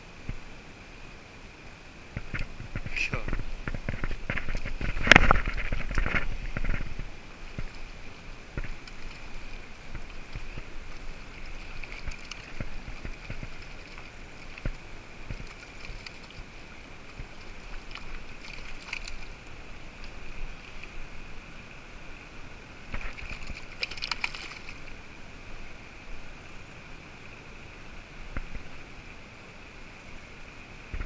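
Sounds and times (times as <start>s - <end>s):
river water running: 0.0s - 31.0s
hands splashing in water: 22.9s - 24.8s.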